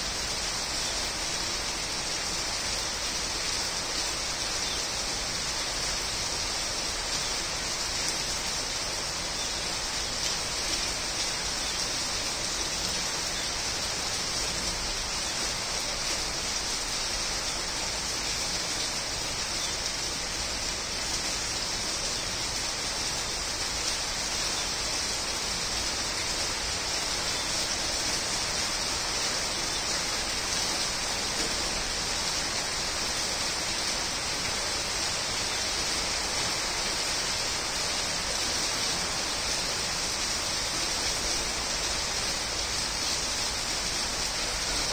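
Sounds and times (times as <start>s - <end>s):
rain on leaves: 0.0s - 44.9s.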